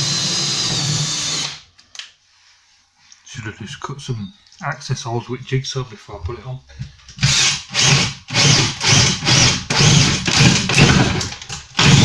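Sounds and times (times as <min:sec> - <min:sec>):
power drill boring through wood: 0:00.0 - 0:01.6, 0:07.2 - 0:12.0.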